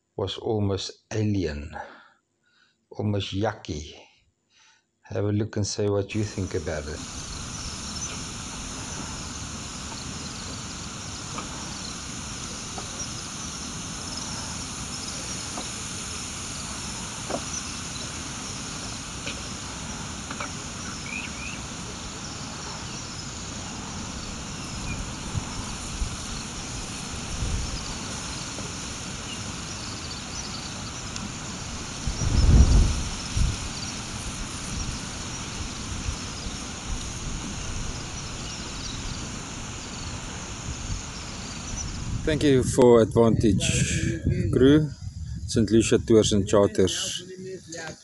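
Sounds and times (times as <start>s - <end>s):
insects buzzing in grass: 6.1s - 48.0s
wind rumble on microphone: 21.8s - 46.8s.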